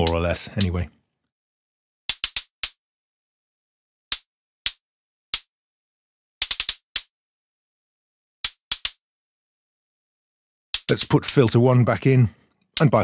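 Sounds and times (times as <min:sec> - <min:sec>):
synthesized drum click ticks: 0:00.0 - 0:00.8.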